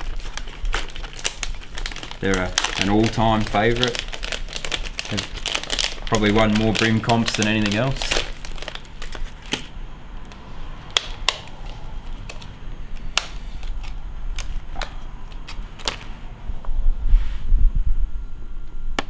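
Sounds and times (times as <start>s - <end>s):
plastic packet crinkling: 0.0s - 10.3s.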